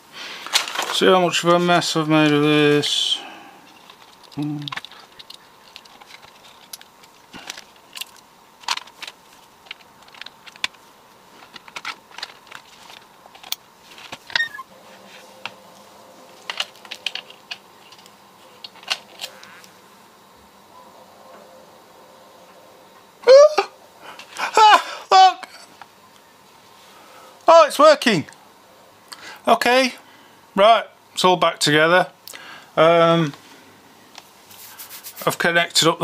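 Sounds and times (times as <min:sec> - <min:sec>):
faint steady hum: 0:00.0 - 0:36.0
plastic parts clicking and tapping: 0:03.8 - 0:10.8, 0:11.4 - 0:14.5, 0:16.4 - 0:19.5.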